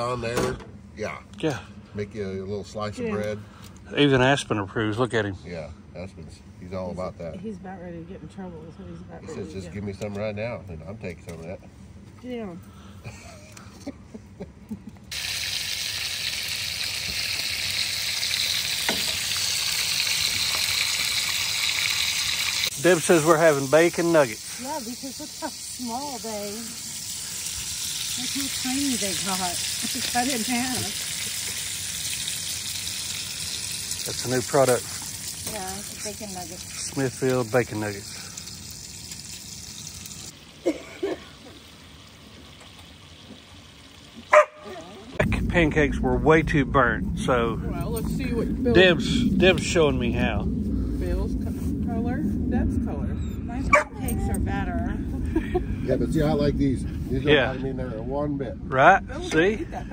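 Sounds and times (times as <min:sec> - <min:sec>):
bacon sizzling in a skillet: 0:15.1 - 0:45.2.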